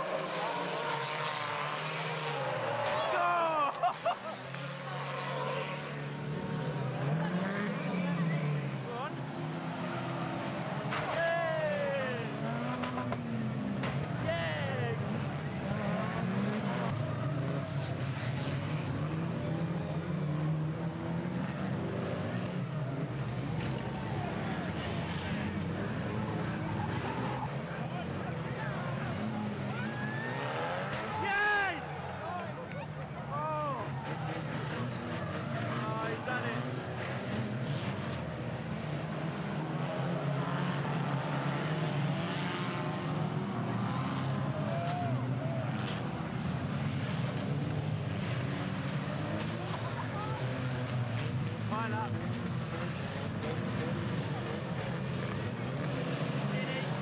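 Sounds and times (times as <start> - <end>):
racing cars revving: 0.0 - 57.0
cars knocking together: 10.7 - 11.2, 12.2 - 14.3.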